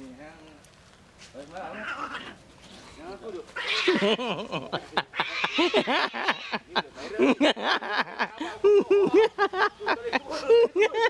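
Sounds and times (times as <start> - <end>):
people laughing: 3.9 - 11.0.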